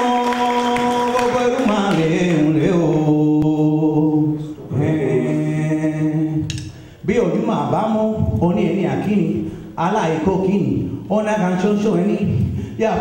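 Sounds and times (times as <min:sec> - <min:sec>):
man singing a chant: 0:00.0 - 0:06.5.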